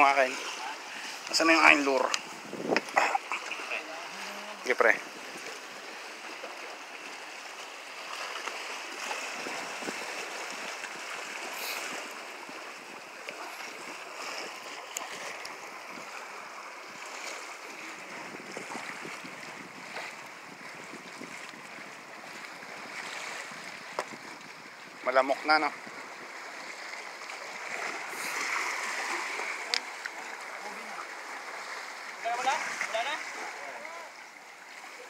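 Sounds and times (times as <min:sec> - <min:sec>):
small waves against rocks: 0:00.0 - 0:35.0
wind: 0:00.0 - 0:35.0.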